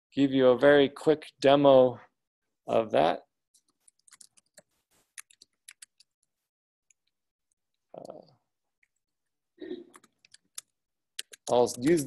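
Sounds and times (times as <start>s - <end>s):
laptop keyboard typing: 3.6s - 6.1s.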